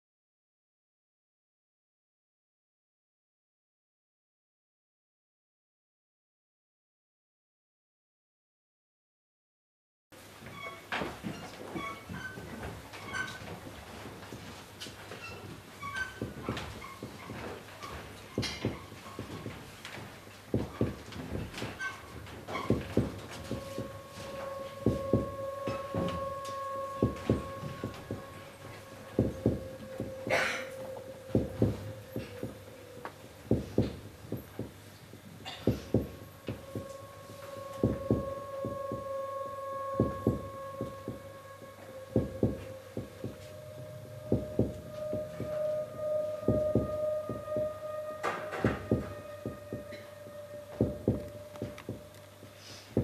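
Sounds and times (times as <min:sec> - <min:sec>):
sustained electronic drone: 0:13.3 - 0:53.0
low heartbeat-like thuds: 0:16.2 - 0:17.5, 0:18.3 - 0:19.7, 0:20.5 - 0:24.1, 0:24.8 - 0:28.3, 0:29.2 - 0:30.4, 0:31.2 - 0:32.7, 0:33.3 - 0:39.2, 0:40.0 - 0:41.3, 0:42.2 - 0:47.7, 0:48.6 - 0:49.9, 0:50.8 - 0:52.1.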